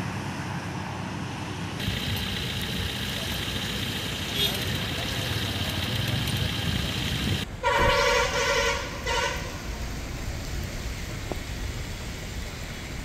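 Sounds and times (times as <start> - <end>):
steady background noise: 0.0 - 7.9
car horn honking: 4.2 - 4.9, 7.6 - 9.5.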